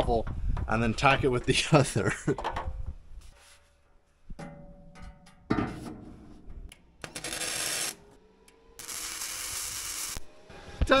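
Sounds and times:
welding arc hiss: 0:08.8 - 0:10.2.

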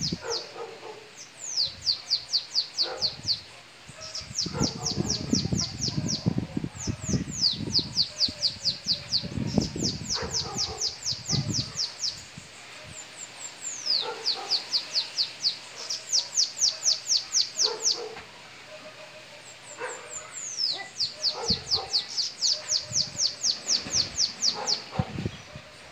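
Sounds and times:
bird singing high fast song: 0:00.0 - 0:18.1, 0:19.4 - 0:25.9.

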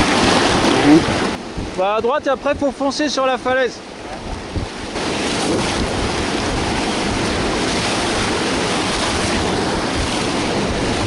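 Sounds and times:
wind on microphone: 0:00.0 - 0:03.0, 0:03.8 - 0:11.0
whitewater rushing and churning: 0:00.0 - 0:11.0.

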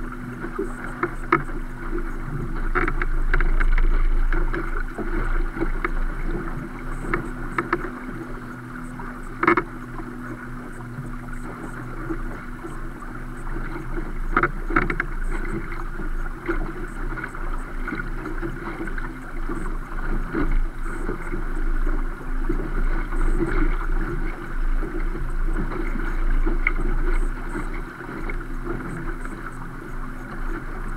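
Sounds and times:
water splashing along hull: 0:00.0 - 0:30.9.

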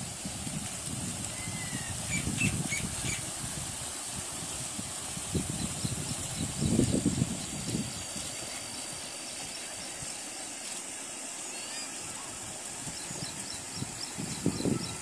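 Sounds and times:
high-pitched outdoor hiss: 0:00.0 - 0:15.0
faint high chirps: 0:11.4 - 0:12.2.

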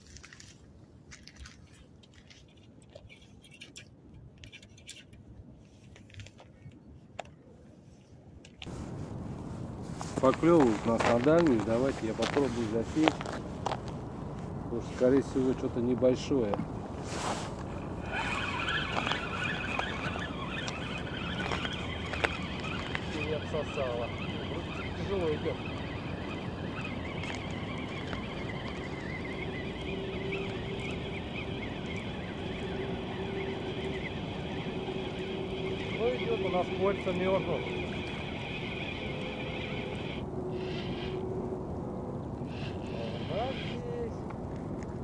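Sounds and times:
clothing rustling: 0:17.0 - 0:19.7
fishing reel whirring: 0:17.5 - 0:41.2.

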